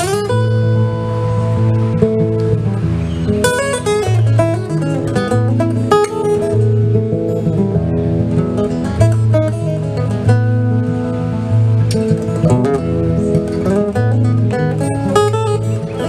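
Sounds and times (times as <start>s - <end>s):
acoustic guitars playing: 0.0s - 16.0s.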